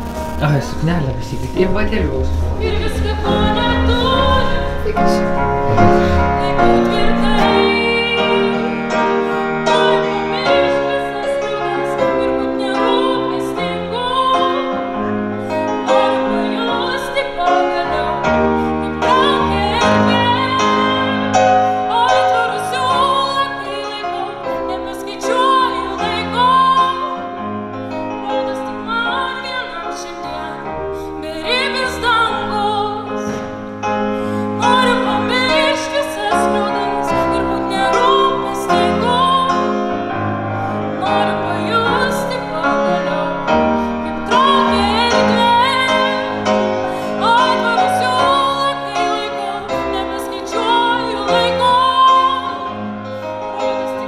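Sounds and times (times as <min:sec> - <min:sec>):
piano: 0:00.0 - 0:54.0
person singing: 0:00.4 - 0:27.1.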